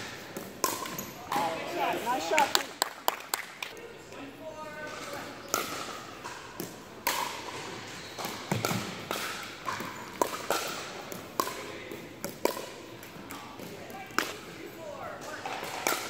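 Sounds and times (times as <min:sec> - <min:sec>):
sneaker squeaks on hardwood floor: 0:07.6 - 0:08.8.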